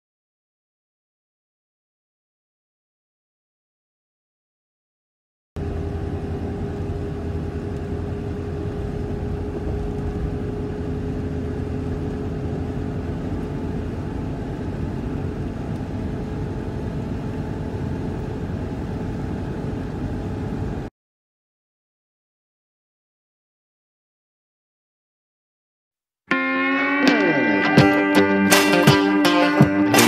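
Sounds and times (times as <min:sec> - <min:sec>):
vehicle engine and road noise: 0:05.6 - 0:20.9.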